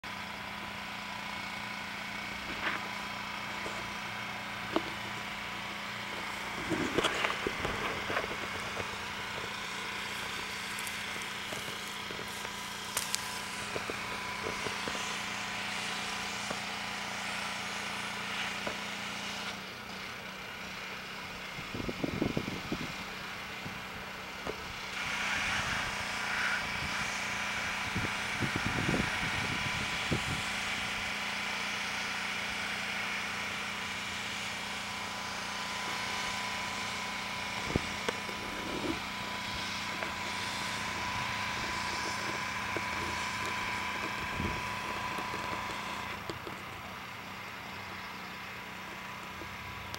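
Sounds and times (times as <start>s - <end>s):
pressure washer running: 0.0s - 49.9s.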